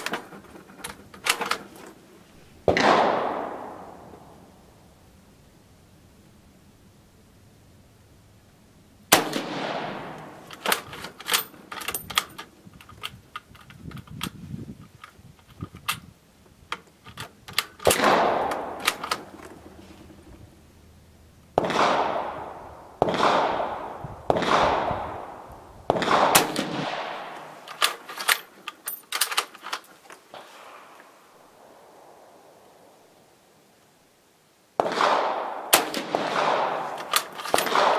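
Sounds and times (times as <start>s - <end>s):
rifle bolt metallic clicks: 0.0s - 2.0s, 10.0s - 16.1s, 16.7s - 20.3s, 26.4s - 30.2s, 35.8s - 37.9s
rifle shots echoing: 2.6s - 4.6s, 9.1s - 12.0s, 17.8s - 20.3s, 21.5s - 28.4s, 34.8s - 37.9s.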